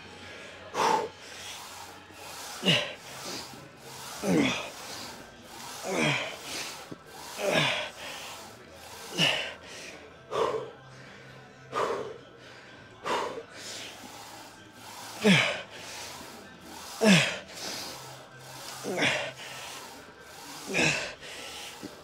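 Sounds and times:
person grunting breaths: 0:14.8 - 0:22.0.

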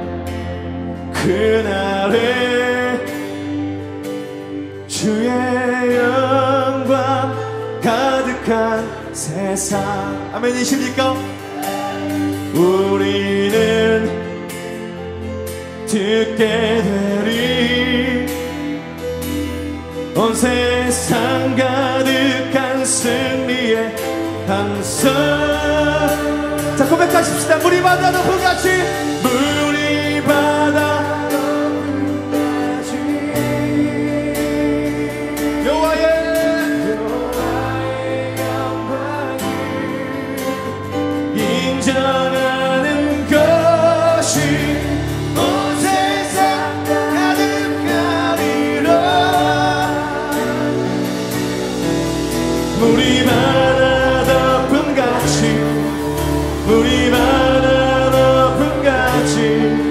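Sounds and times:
acoustic guitar: 0:00.0 - 0:59.9
bass: 0:00.0 - 0:59.9
man singing lead: 0:00.0 - 0:59.9
piano: 0:00.0 - 0:59.9
drums: 0:09.2 - 0:59.9
backing vocals: 0:20.1 - 0:59.9.

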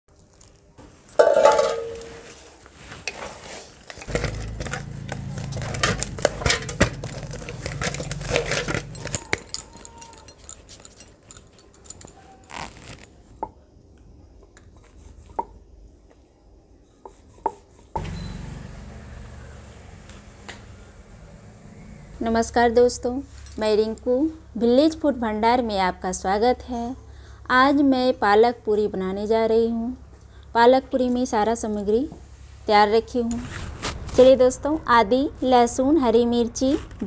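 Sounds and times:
loud metal clang: 0:01.2 - 0:02.2
steel utensils clanking and scraping: 0:01.2 - 0:02.3, 0:04.0 - 0:12.5.

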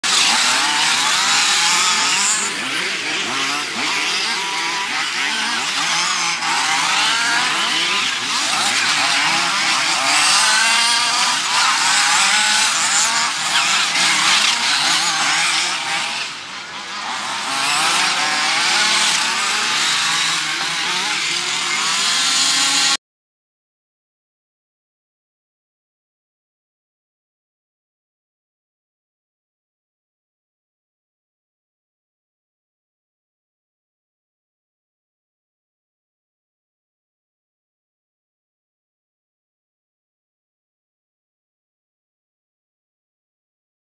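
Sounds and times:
small two-stroke engines revving: 0:00.0 - 0:23.0.

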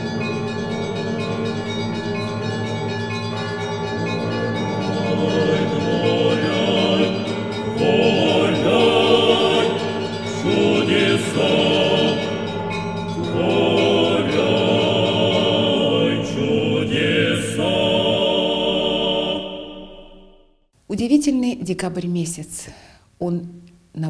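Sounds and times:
choir singing church music: 0:00.0 - 0:20.6
steady held tones: 0:00.0 - 0:20.7.

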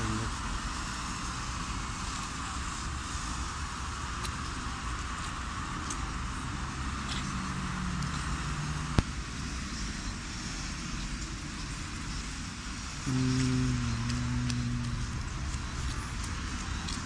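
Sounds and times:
cars passing on wet street: 0:00.0 - 0:17.0
low engine hum: 0:12.8 - 0:17.0.

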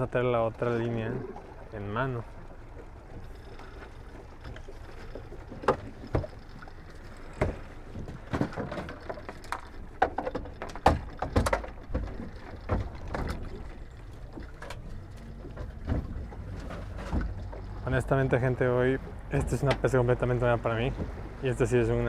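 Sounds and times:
knocks and clacks on boat: 0:00.0 - 0:22.0
rumble of water and wind: 0:00.0 - 0:22.0
water splashes: 0:00.0 - 0:22.0.

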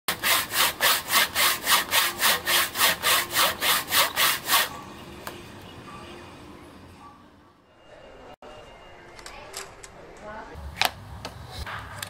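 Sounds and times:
hand saw cutting log: 0:00.1 - 0:04.8.

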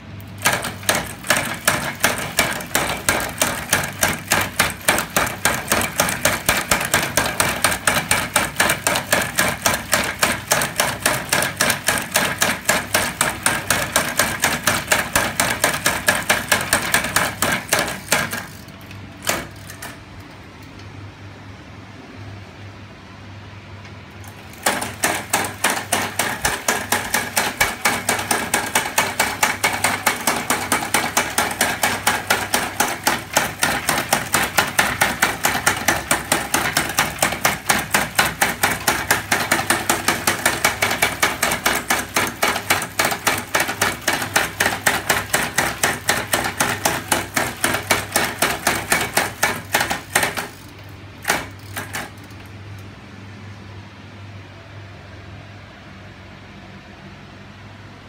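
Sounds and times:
metal mechanism clacking rhythmically: 0:00.0 - 0:20.0, 0:24.2 - 0:52.5.

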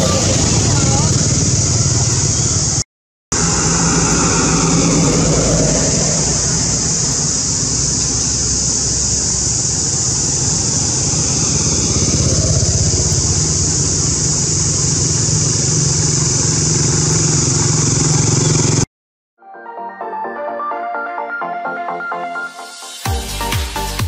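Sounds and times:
motorcycle engine humming: 0:00.0 - 0:18.9
high-pitched hiss: 0:03.4 - 0:18.5.

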